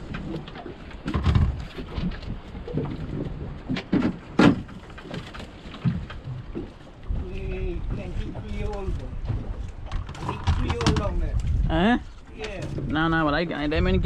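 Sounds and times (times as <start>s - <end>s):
fishing gear knocks and clicks: 8.7s - 11.6s.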